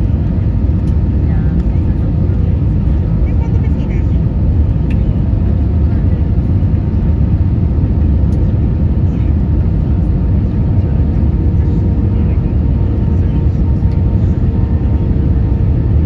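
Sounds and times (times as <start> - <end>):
low rumble of airflow and engines: 0.0 - 16.0.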